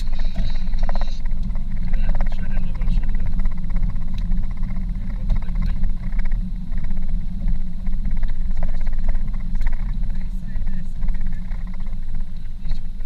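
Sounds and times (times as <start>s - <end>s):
car road and engine noise: 0.0s - 13.0s.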